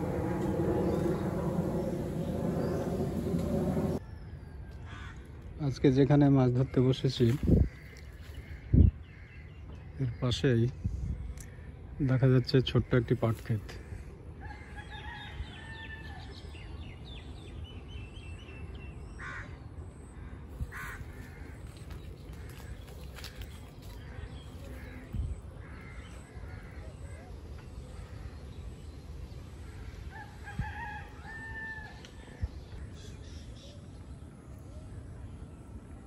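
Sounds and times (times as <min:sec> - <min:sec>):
wind rumble on microphone: 0:00.0 - 0:04.0, 0:07.3 - 0:09.0, 0:10.7 - 0:11.6, 0:20.5 - 0:25.8, 0:29.6 - 0:32.9
rooster crowing: 0:30.1 - 0:32.1.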